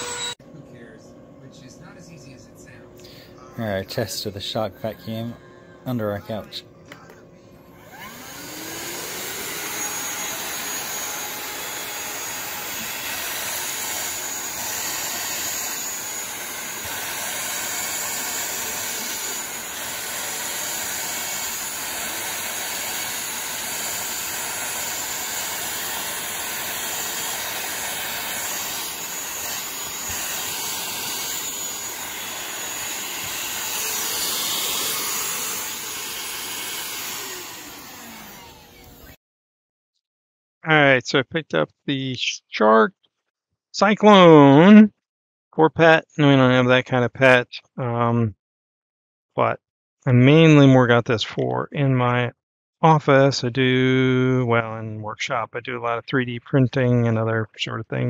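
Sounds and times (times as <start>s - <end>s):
handheld vacuum whining: 0.0s - 0.4s, 7.7s - 39.2s.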